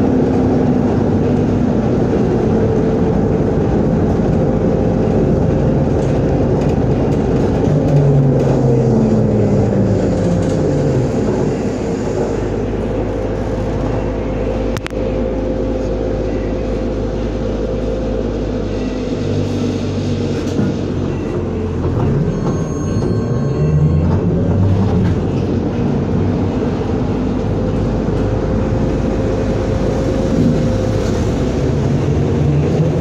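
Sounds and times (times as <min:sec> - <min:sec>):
trolleybus motor whine: 0:00.0 - 0:33.0.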